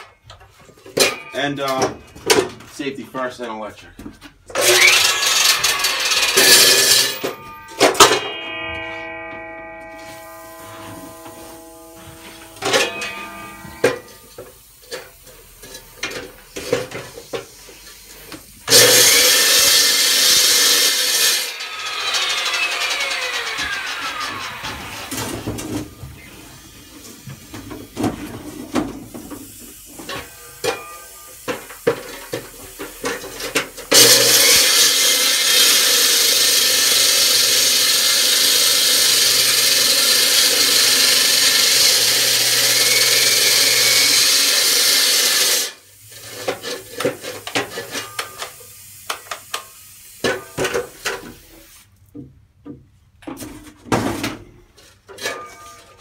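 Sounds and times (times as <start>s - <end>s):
electric saw cutting concrete: 4.6s - 14.4s, 18.7s - 26.7s, 34.0s - 45.8s.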